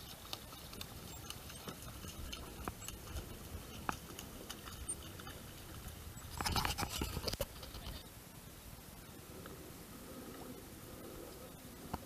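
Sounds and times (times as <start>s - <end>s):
water lapping at kayak hull: 0.0s - 8.0s.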